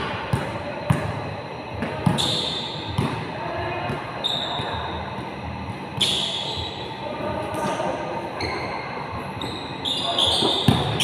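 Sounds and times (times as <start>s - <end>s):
basketball bouncing: 0.0s - 1.2s, 1.8s - 3.2s, 10.4s - 11.0s
voices echoing in a hall: 0.0s - 11.0s
sneakers squeaking on court: 1.8s - 3.2s, 3.9s - 6.9s, 9.4s - 11.0s.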